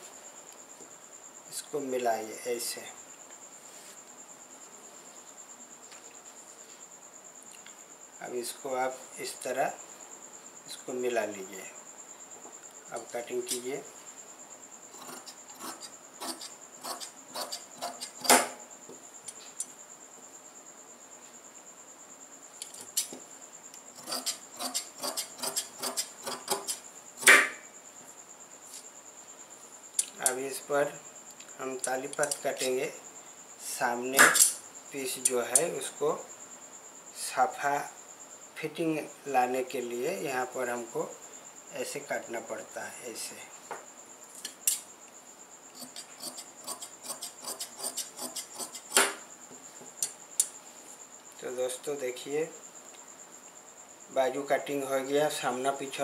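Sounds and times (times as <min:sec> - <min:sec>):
sharp click: 0:30.0 - 0:30.4, 0:34.2 - 0:34.6.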